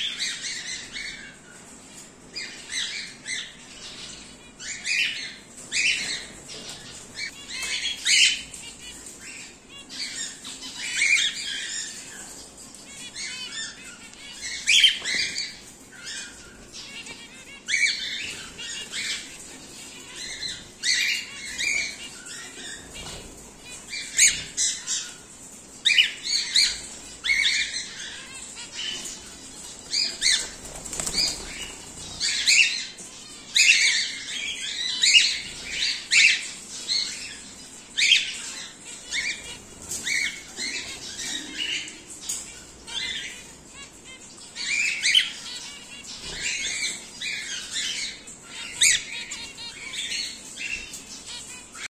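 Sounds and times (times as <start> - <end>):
birds chirping and squawking: 0.0 - 51.9
wings flapping: 29.8 - 32.3.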